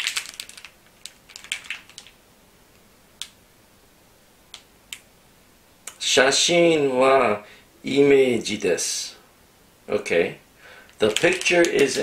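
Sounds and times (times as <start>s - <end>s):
plastic wrapper crinkling: 0.0s - 2.2s, 11.0s - 12.0s.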